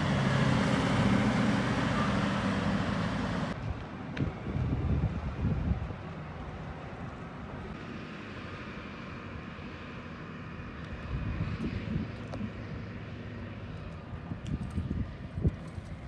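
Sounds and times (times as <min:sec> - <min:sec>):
distant diesel loader droning: 0:00.0 - 0:03.6.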